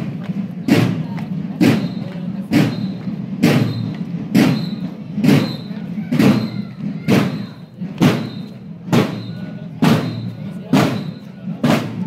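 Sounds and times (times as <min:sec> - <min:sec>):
marching bass drum beating: 0:00.0 - 0:12.0.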